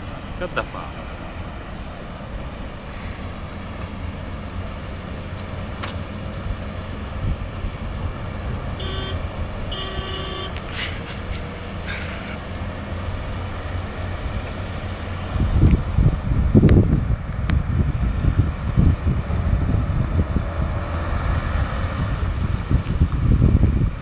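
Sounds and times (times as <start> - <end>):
truck diesel engine droning: 0.0 - 16.6
truck horn blasts: 8.8 - 10.8.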